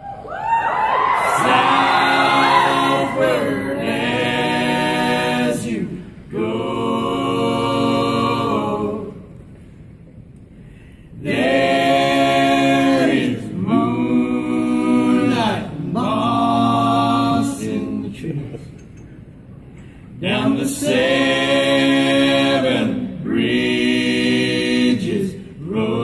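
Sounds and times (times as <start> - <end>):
men singing in harmony: 11.2 - 18.2, 20.2 - 26.0.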